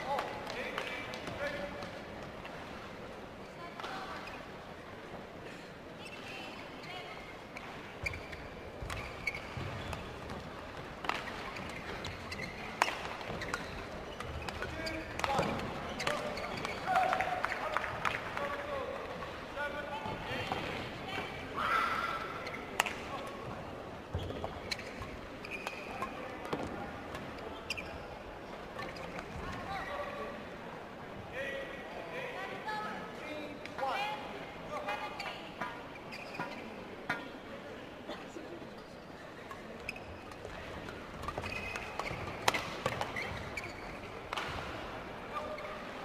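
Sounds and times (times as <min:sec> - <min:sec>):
low crowd murmur: 0:00.0 - 0:46.0
shoes squeaking on court: 0:06.0 - 0:17.7, 0:22.3 - 0:30.2, 0:34.9 - 0:37.3, 0:38.8 - 0:46.0
crowd murmur: 0:37.0 - 0:41.1.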